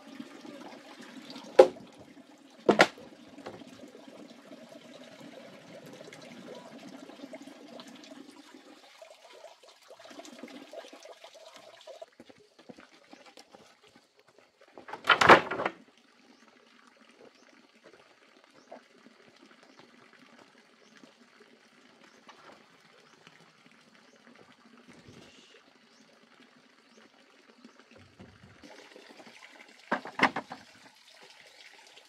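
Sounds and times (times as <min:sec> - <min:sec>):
log thudding onto logs: 0:01.6 - 0:01.8, 0:02.7 - 0:03.6, 0:14.8 - 0:15.8, 0:29.9 - 0:30.6.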